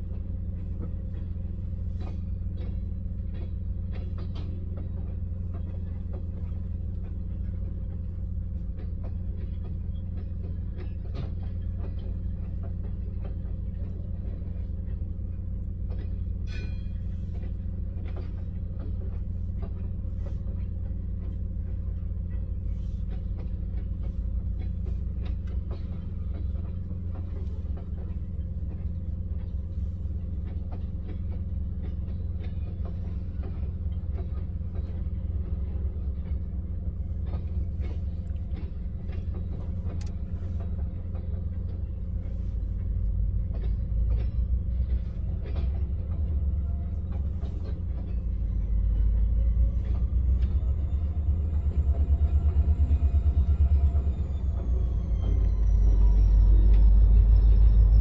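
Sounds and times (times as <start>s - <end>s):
freight train rumbling past: 0.0s - 58.0s
wheels clicking over rails: 0.0s - 58.0s.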